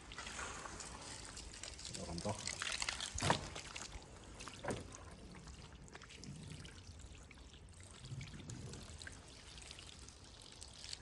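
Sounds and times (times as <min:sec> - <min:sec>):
hose water pouring over car: 0:00.0 - 0:11.0.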